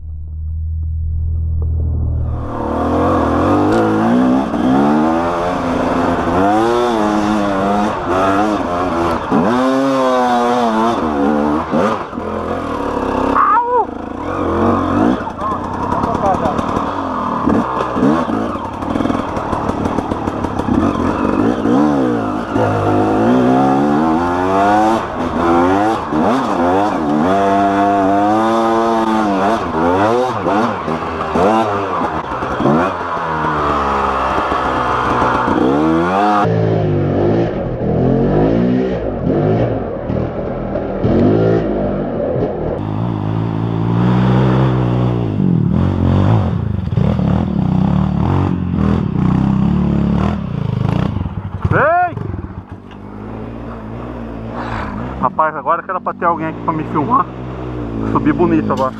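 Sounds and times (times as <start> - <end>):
dirt bike engine revving: 2.0 - 58.9.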